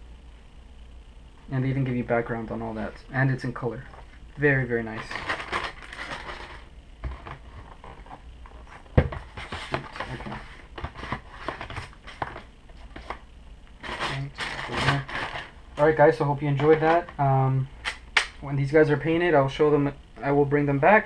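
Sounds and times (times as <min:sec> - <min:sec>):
paper rustling: 0:04.9 - 0:13.2, 0:13.8 - 0:15.6.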